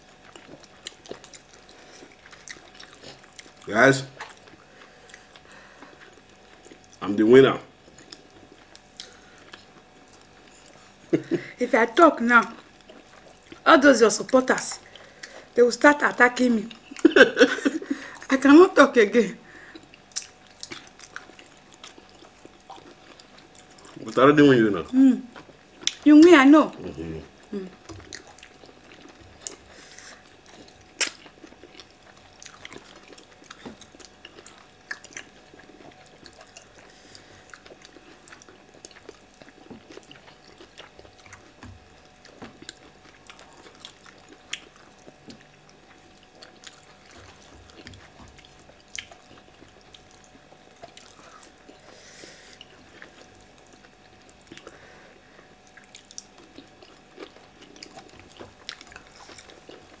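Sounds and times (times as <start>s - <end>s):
chewing and wet mouth clicks: 0.2s - 7.0s, 7.9s - 10.8s, 19.7s - 24.0s, 25.3s - 26.0s, 27.8s - 29.6s, 30.4s - 36.9s, 37.5s - 51.9s, 55.6s - 60.0s.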